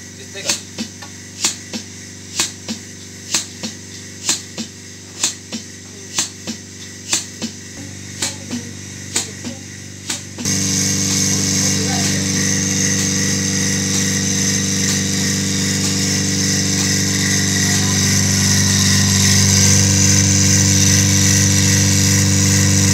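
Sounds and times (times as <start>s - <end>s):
vacuum pump humming: 0.0s - 22.9s
milking machine clicking: 8.2s - 22.9s.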